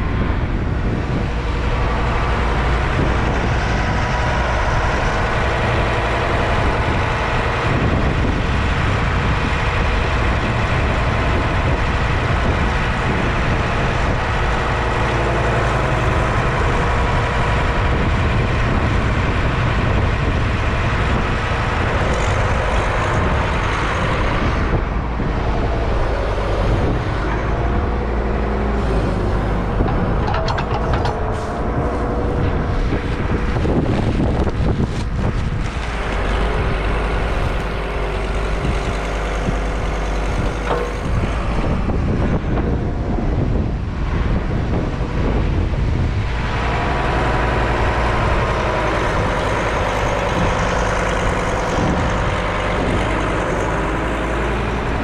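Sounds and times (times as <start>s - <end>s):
diesel engine running: 0.0s - 55.0s
short knocks: 29.5s - 31.5s.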